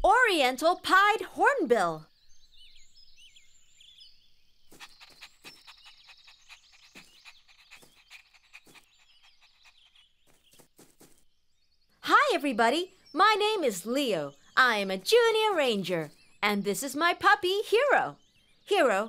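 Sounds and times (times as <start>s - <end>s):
high bird chirps: 2.0s - 10.7s.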